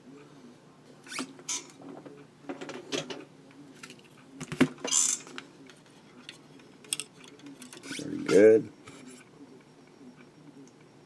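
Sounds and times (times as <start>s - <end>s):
tools clicking and creaking: 6.2s - 8.1s.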